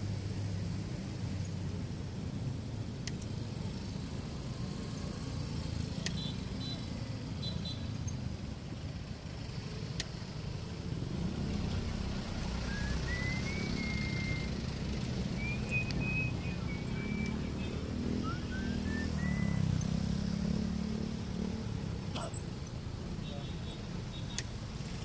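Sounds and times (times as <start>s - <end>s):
motorcycle engine rumble: 0.0s - 25.0s
surrounding traffic: 0.0s - 25.0s
high gliding whistle tones: 12.6s - 14.6s, 15.3s - 20.0s.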